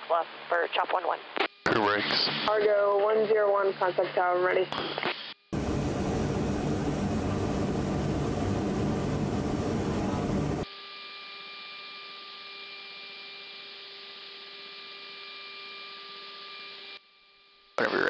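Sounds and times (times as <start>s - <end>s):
thin steady intercom tones: 0.1s - 4.7s
electrical hum: 0.3s - 10.7s
turboprop engines roaring: 5.6s - 10.6s.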